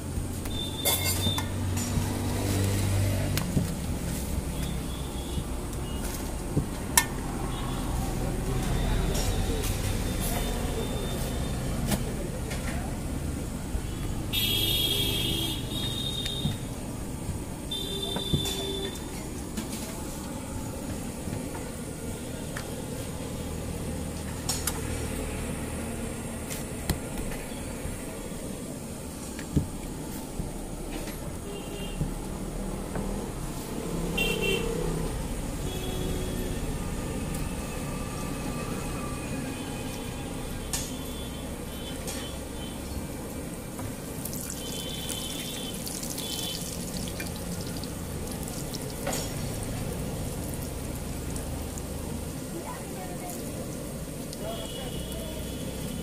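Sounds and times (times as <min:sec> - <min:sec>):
oil sizzling and crackling: 0:41.1 - 0:56.0.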